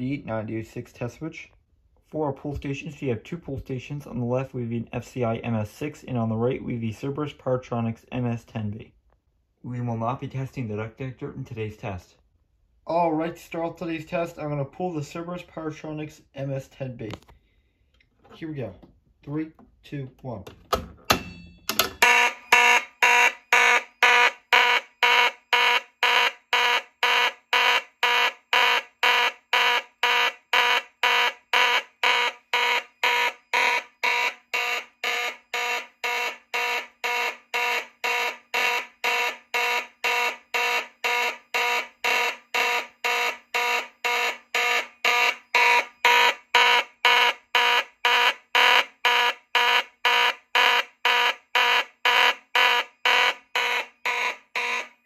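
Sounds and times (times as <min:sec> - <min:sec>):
fire alarm horn blasts: 0:22.0 - 0:55.0.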